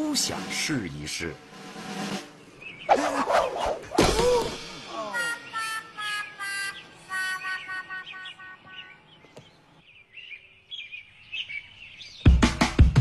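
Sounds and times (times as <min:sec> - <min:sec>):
bird chirping and whistling: 0:05.2 - 0:09.2.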